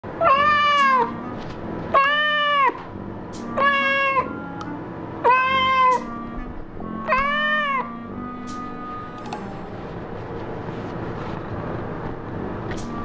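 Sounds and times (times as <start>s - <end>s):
cat meowing: 0.2s - 1.2s, 1.9s - 2.8s, 3.6s - 4.3s, 5.2s - 6.1s, 7.1s - 8.0s.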